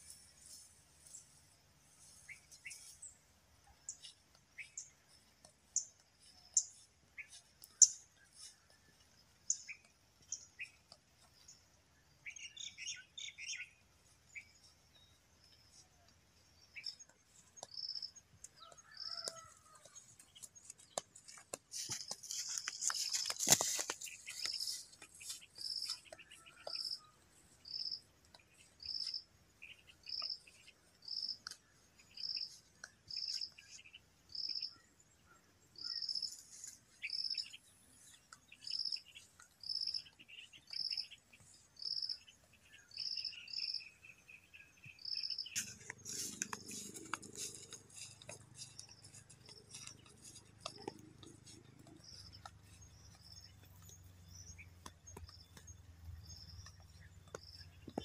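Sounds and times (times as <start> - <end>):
rustling and crackling clicks: 17.0 - 27.0, 45.5 - 58.0.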